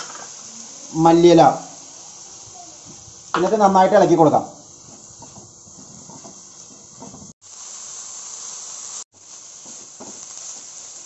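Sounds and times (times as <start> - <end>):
vegetables sizzling in oil: 0.0 - 11.0
spatula scraping a pan: 4.7 - 7.4.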